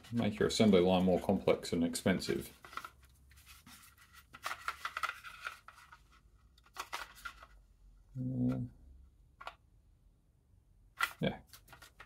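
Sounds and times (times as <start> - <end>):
plastic parts rubbing and clicking: 2.3 - 7.6, 11.0 - 12.0.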